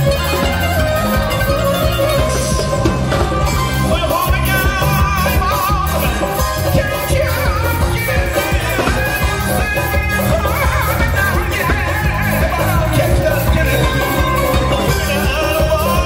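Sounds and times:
drum kit: 0.0 - 16.0
keyboards: 0.0 - 16.0
man singing into microphone: 2.0 - 16.0.

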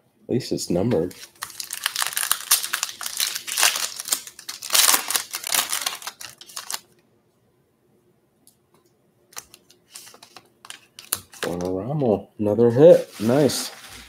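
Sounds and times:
cards drawn out: 1.0 - 6.8, 9.3 - 11.8
foil wrapper crinkling and tearing: 1.0 - 6.9, 9.4 - 11.6.

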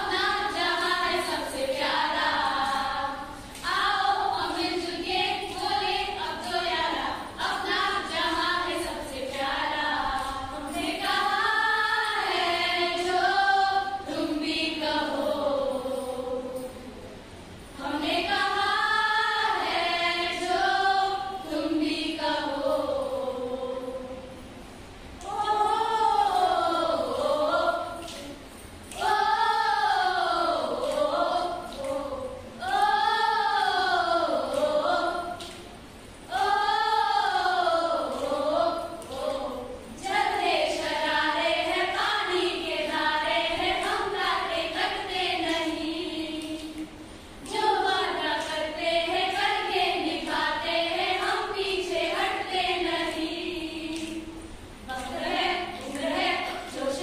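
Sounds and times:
women singing together: 0.0 - 57.0.

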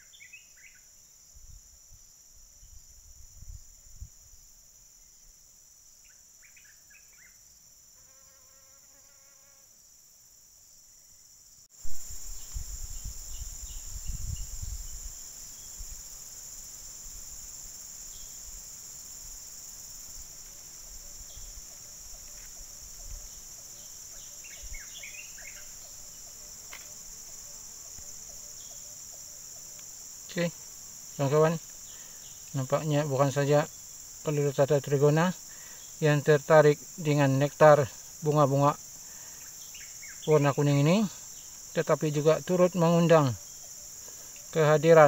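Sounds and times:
insect chorus: 0.0 - 45.0.

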